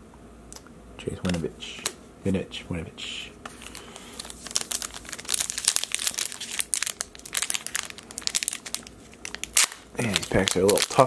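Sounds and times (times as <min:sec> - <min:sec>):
foil wrapper crinkling: 0:03.5 - 0:11.0.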